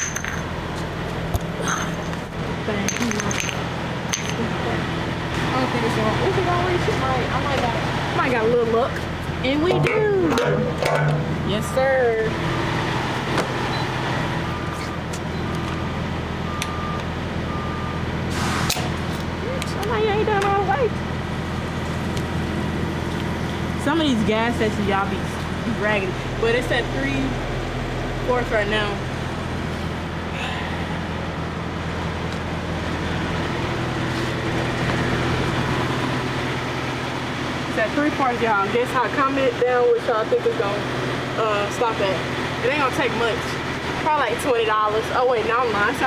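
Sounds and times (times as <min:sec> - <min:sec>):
diesel engine idling: 0:00.0 - 0:46.0
fuel pumping rush: 0:00.0 - 0:46.0
truck backup alarm beeping: 0:09.5 - 0:19.0.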